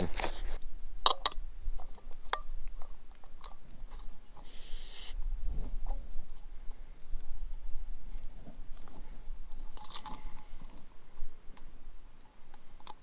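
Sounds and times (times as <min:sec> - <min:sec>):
gas hiss: 0:04.4 - 0:05.2
small metallic clicks and scrapes: 0:08.2 - 0:10.9.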